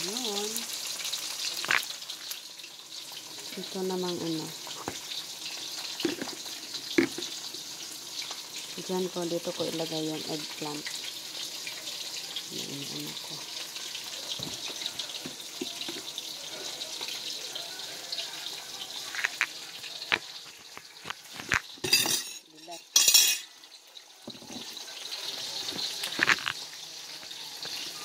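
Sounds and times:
utensils and dishes clicking: 20.8 - 23.6.

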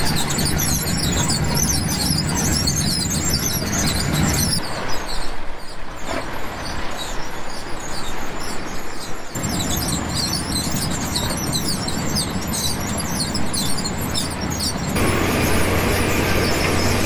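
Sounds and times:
harvesting machinery humming: 9.4 - 17.0.

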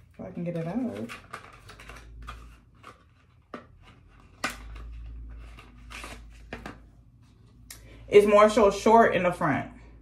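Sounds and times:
plastic packaging clicks and rustles: 0.5 - 6.8.

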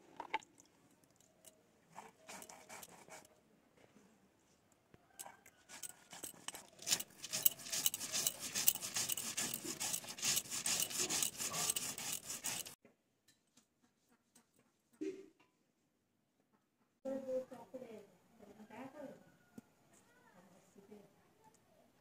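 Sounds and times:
stone grinding seeds: 1.4 - 3.2, 5.2 - 12.8.

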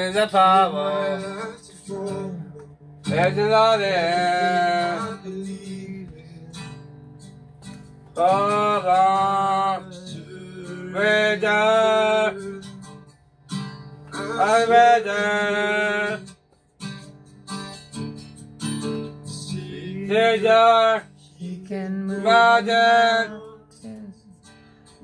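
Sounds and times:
man singing worship song: 0.0 - 6.8, 8.2 - 12.8, 14.1 - 16.3, 19.5 - 24.2
strummed acoustic guitar: 0.0 - 25.0.

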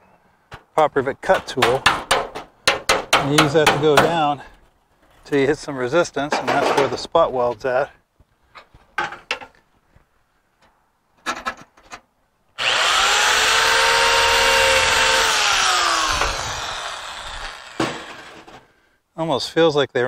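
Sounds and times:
cordless drill cutting steel: 12.6 - 18.6.

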